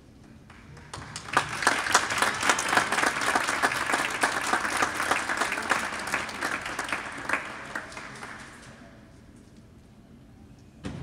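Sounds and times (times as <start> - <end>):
crowd applauding: 0.5 - 8.9.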